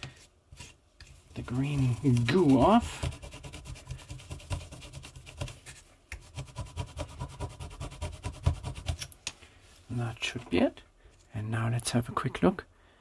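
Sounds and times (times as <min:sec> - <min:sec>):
cloth scrubbing circuit board: 0:00.6 - 0:09.1.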